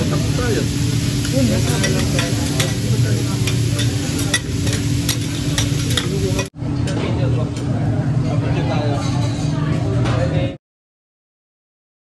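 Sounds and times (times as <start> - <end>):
beef sizzling on griddle: 0.0 - 6.5
metal spatulas scraping and clacking: 3.4 - 6.5.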